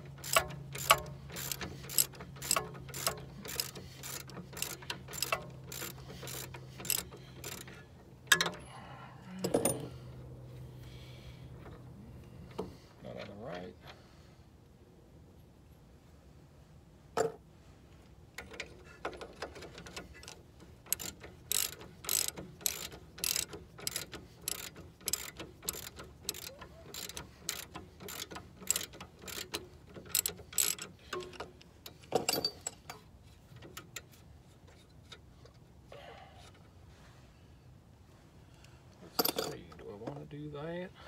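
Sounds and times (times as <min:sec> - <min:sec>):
ratchet wrench clicking: 0:00.2 - 0:08.6, 0:19.7 - 0:32.0
wrench clack: 0:00.2 - 0:08.6, 0:18.4 - 0:33.0.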